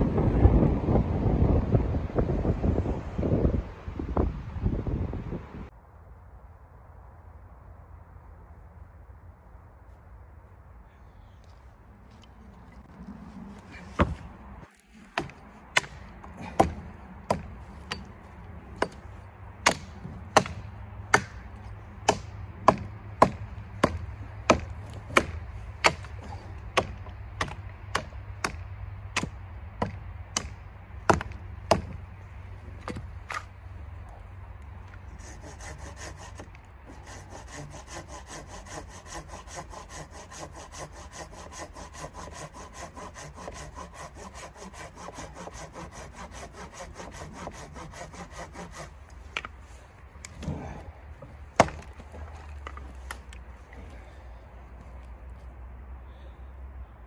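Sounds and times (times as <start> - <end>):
hand saw cutting log: 13.8 - 18.1, 18.8 - 28.6, 32.8 - 33.5, 34.9 - 54.0
hatchet chopping log: 13.9 - 18.2, 18.8 - 32.0, 32.7 - 33.5, 34.9 - 49.6, 50.2 - 53.4.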